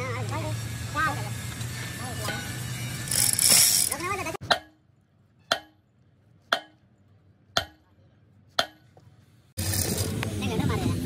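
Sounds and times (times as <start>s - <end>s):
hammer striking metal: 4.4s - 5.9s, 6.5s - 6.9s, 7.5s - 7.9s, 8.5s - 9.0s.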